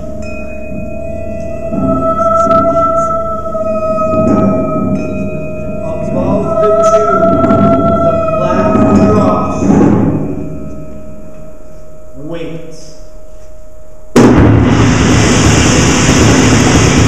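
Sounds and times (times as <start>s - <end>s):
held high tone: 0.0s - 14.1s
low drum rumbles: 6.9s - 10.6s, 14.2s - 17.0s.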